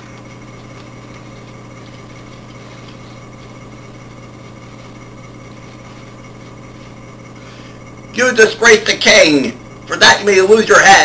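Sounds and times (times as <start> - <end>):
faint high whine: 0.0 - 11.0
steady low hum: 0.0 - 11.0.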